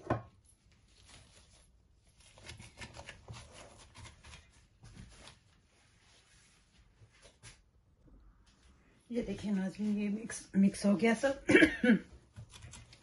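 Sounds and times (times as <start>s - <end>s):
gloved hand kneading mince: 0.0s - 8.0s.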